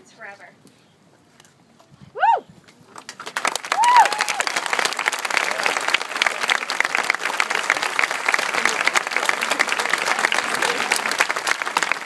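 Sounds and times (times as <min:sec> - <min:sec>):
audience clapping: 0:02.9 - 0:12.0.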